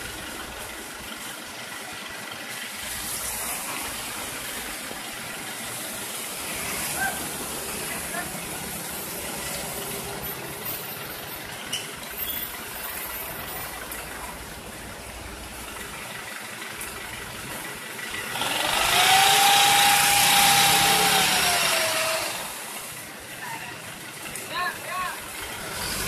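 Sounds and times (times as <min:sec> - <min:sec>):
idling machinery rumbling: 0:00.0 - 0:26.0
truck engine revving with whine: 0:02.8 - 0:22.9, 0:25.3 - 0:26.0.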